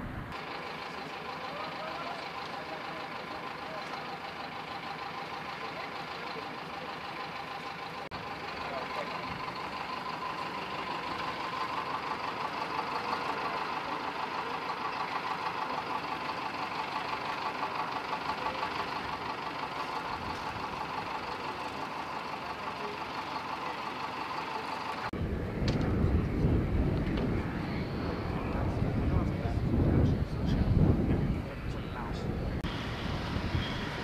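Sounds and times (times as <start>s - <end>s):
engine drone with flutter: 0.0s - 34.0s
wind buffeting microphone: 25.2s - 34.0s.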